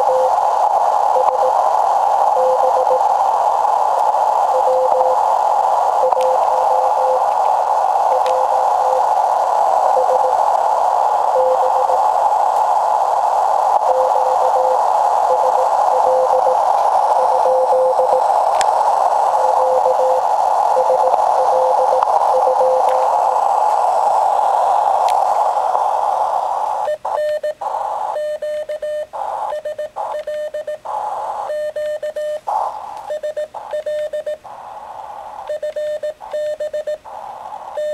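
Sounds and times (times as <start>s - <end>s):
morse code tone: 0.0s - 0.4s, 1.1s - 1.6s, 2.4s - 3.1s, 4.5s - 5.2s, 6.0s - 7.3s, 8.1s - 9.1s, 9.8s - 10.4s, 11.3s - 12.0s, 13.8s - 18.3s, 19.3s - 23.2s
faint static clicks: 0.0s - 37.9s
receiver hiss: 0.0s - 37.9s.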